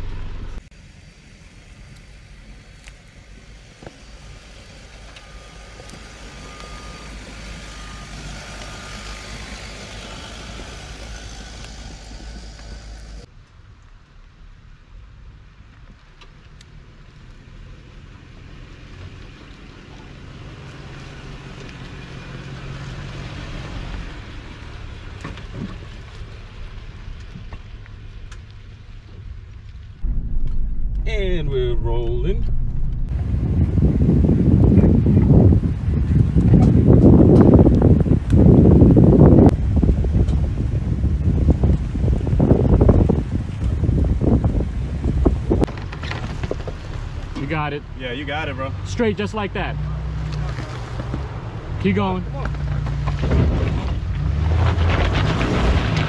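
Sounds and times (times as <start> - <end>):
car engine hum driving by: 0.0 - 13.3, 29.8 - 45.6
tyres on dirt trail: 0.0 - 31.2, 31.8 - 56.0
suv engines running low: 0.0 - 56.0.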